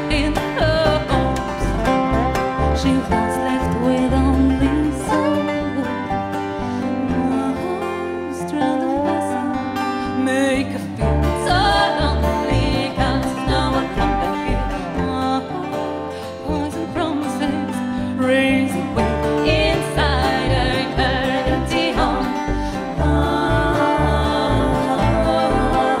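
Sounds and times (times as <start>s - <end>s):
upright bass low notes: 0.0s - 6.3s, 11.0s - 15.2s, 18.9s - 26.0s
acoustic guitar: 0.0s - 26.0s
banjo: 0.0s - 26.0s
dobro: 0.0s - 26.0s
fiddle: 0.0s - 26.0s.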